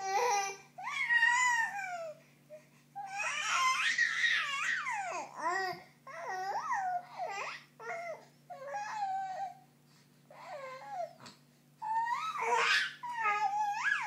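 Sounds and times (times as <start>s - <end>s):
baby crying: 0.0s - 2.2s, 3.0s - 9.6s, 11.8s - 14.0s.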